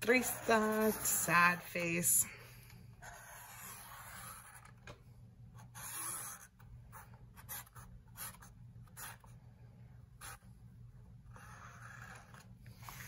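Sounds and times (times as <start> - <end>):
marker rubbing on paper: 0.1 - 1.3, 3.0 - 4.7, 5.6 - 9.3, 11.3 - 13.0.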